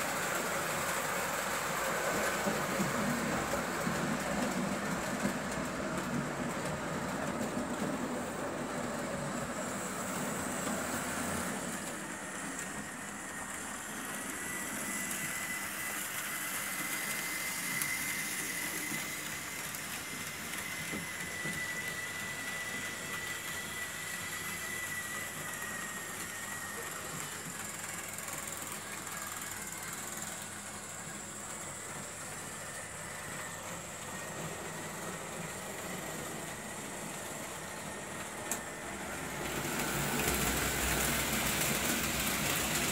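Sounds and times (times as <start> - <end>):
faint high whine: 6.6 - 42.9
model train wheels rattling on track: 39.3 - 42.9.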